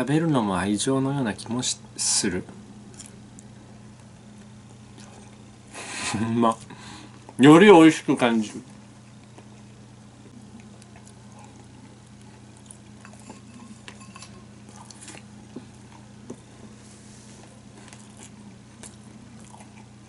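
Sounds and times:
low room hum: 0.0 - 20.0
quiet chewing: 2.8 - 5.8, 6.5 - 7.4, 8.6 - 20.0.

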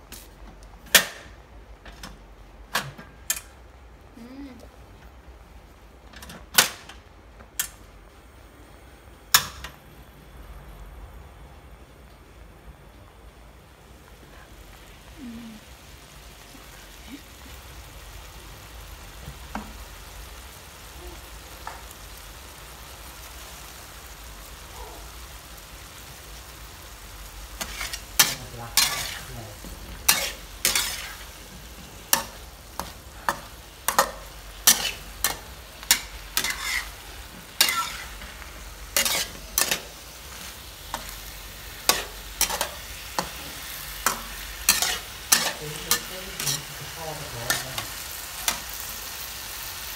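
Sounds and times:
food sizzling in a wok: 13.3 - 49.9
spatula scraping a wok: 27.5 - 48.9.

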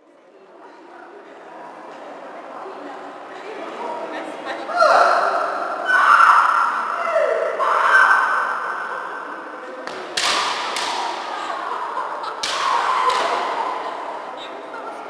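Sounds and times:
bamboo sword strikes cracking: 9.9 - 11.0
fighters shouting: 12.3 - 14.1.

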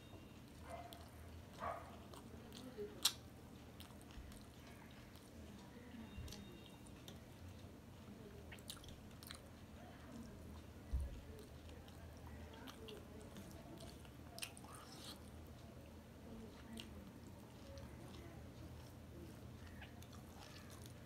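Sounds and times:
faint chewing and mouth sounds: 0.0 - 21.0.

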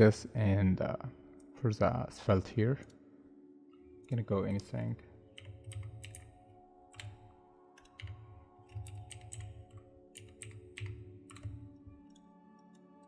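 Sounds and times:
soft background music: 0.0 - 13.0
keyboard typing: 5.3 - 13.0.

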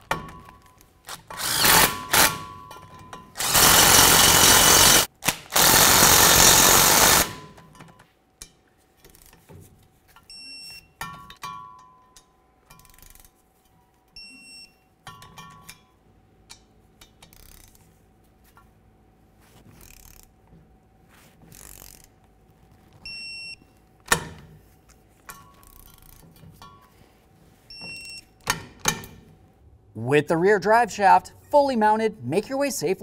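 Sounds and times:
ratchet clicking: 17.0 - 17.8, 19.8 - 20.4, 21.5 - 22.1.

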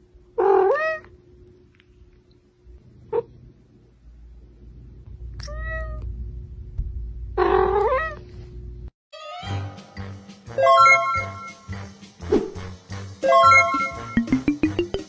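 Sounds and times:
cat meowing: 7.4 - 8.2.

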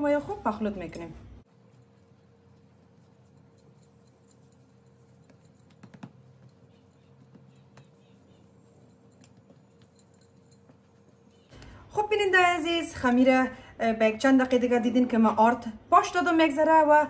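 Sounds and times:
soft taps of kneading dough: 5.2 - 8.5.

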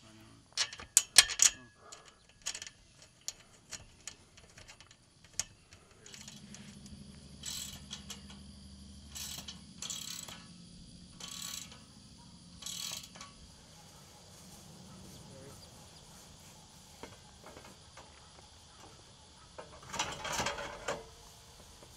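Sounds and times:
metal clicks of nut and bolt: 0.5 - 6.6, 7.4 - 8.4, 9.1 - 10.5, 11.2 - 11.8, 12.6 - 13.3
ratchet wrench clicking: 0.5 - 8.5, 9.1 - 12.0, 12.6 - 13.5
faint low hum: 1.4 - 21.9.

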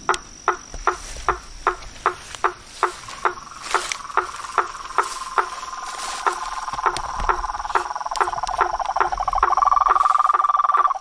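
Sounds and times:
frog knocking call: 0.0 - 11.0
frog trilling: 0.0 - 11.0.

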